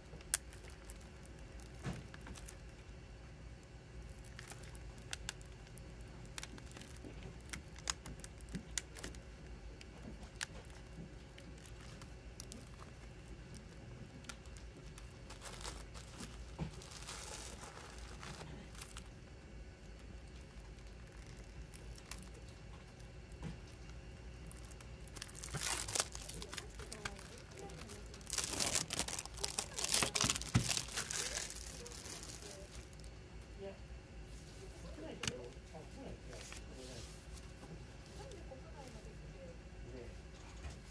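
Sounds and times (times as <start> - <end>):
faint low hum: 0.0 - 40.9
plastic rustle: 0.1 - 2.9, 4.0 - 9.2, 9.8 - 19.1, 19.8 - 33.1
plastic packaging crinkling: 0.1 - 33.1.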